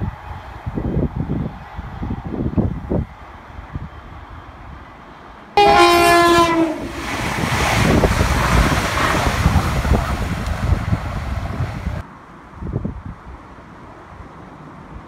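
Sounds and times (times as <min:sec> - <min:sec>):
train two-tone horn: 0:05.6 - 0:07.0
train wheels rumbling on rails: 0:05.6 - 0:12.0.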